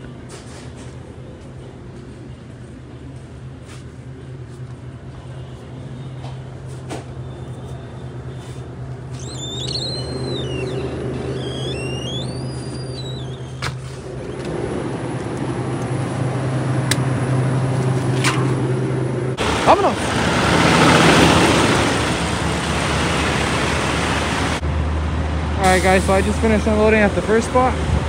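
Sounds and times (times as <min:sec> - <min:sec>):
drink cooler humming: 0:04.7 - 0:24.6
high wavering squeaks: 0:09.1 - 0:14.4
cooler door opening: 0:09.2 - 0:14.7.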